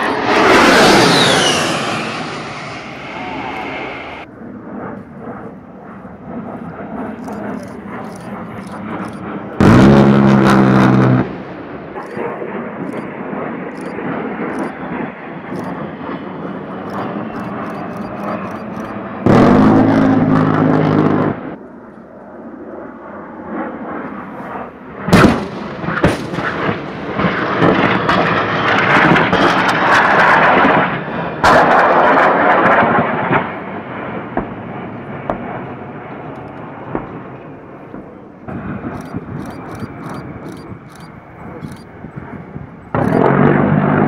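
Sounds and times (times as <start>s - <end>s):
jet engines passing: 0.0s - 44.0s
rotary cannon firing: 16.7s - 19.9s, 36.4s - 41.8s, 42.9s - 44.0s.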